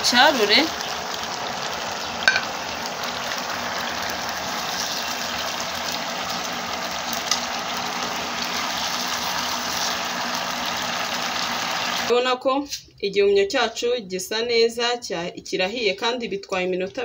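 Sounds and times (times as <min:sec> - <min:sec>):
sauce sizzling and bubbling: 0:00.0 - 0:12.1.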